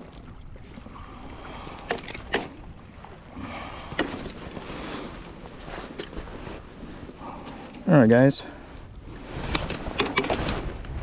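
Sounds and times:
wind rumbling on microphone: 8.4 - 11.0.

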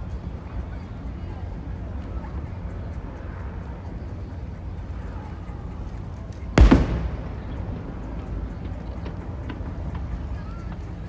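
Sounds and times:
firework shell bursting with boom: 6.6 - 9.6.

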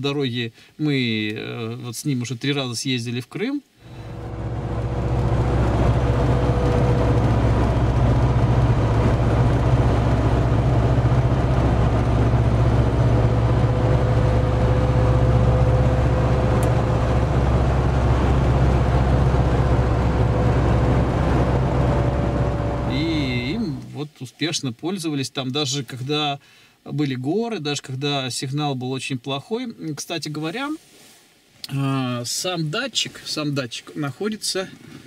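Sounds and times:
engine and tyre rumble: 3.9 - 23.9.

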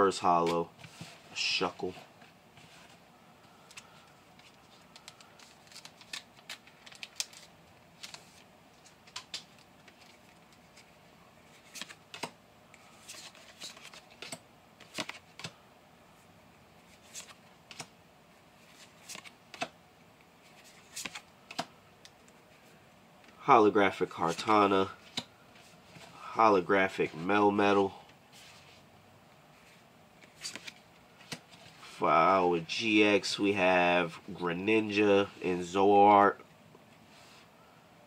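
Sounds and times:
trading cards clicking and snapping: 8.8 - 10.2, 20.9 - 22.2.

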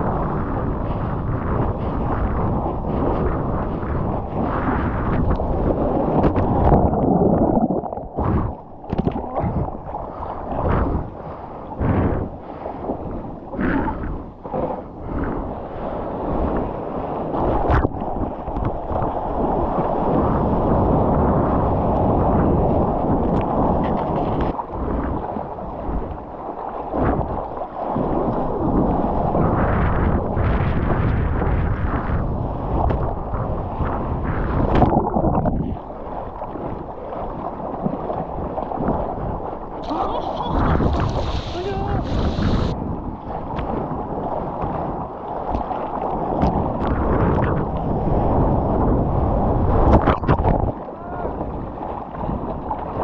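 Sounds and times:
wind buffeting microphone: 0.0 - 53.0
water splashing: 4.3 - 12.8, 34.6 - 48.5
whitewater rushing and splashing: 5.5 - 12.2, 39.8 - 42.8.

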